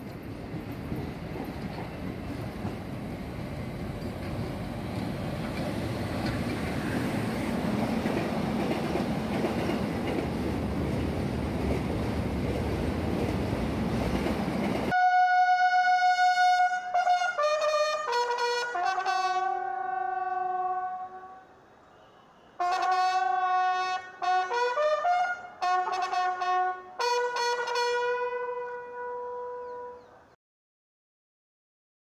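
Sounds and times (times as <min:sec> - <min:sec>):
freight train rumbling past: 0:00.0 - 0:21.4.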